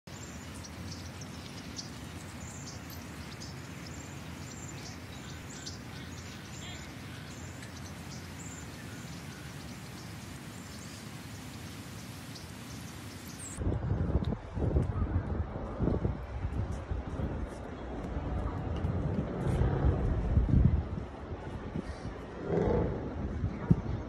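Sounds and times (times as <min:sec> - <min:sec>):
bird chirps: 0:00.1 - 0:13.6.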